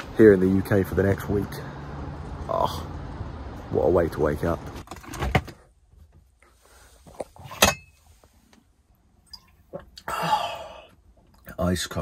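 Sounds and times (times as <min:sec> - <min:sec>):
man swallowing water: 0:09.3 - 0:10.8
breathy exhale: 0:10.1 - 0:11.0.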